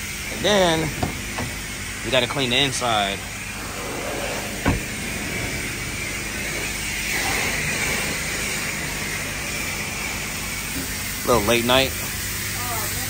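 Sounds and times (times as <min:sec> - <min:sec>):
water spraying onto car: 0:00.0 - 0:13.0
low hum: 0:02.8 - 0:11.7.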